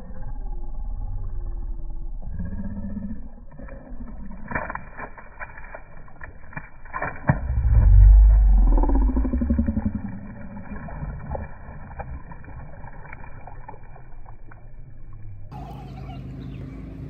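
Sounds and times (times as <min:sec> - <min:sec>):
low rumble: 0:00.0 - 0:17.0
fish splashing at water surface: 0:03.5 - 0:15.5.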